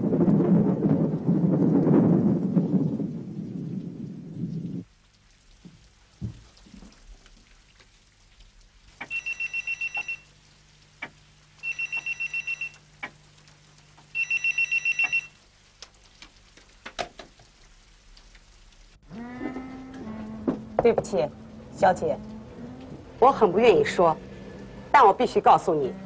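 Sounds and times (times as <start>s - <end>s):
telephone ringing: 9.0s - 10.3s, 11.6s - 12.8s, 14.2s - 15.4s.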